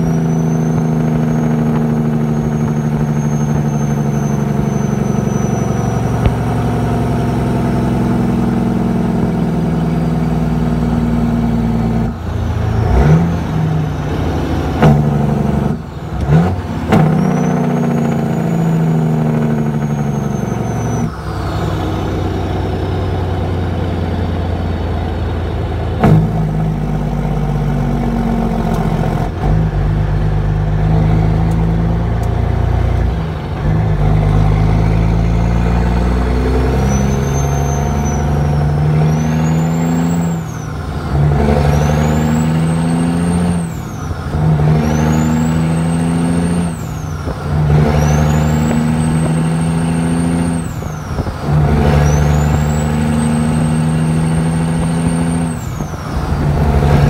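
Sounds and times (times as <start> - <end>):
truck diesel engine revving: 0.0 - 57.0
high turbo whistle: 2.3 - 6.8, 17.0 - 22.2, 35.2 - 40.8, 51.9 - 57.0.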